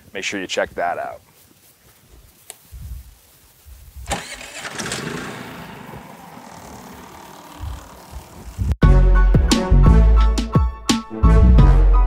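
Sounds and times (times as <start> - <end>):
generator running: 4.1 - 8.8.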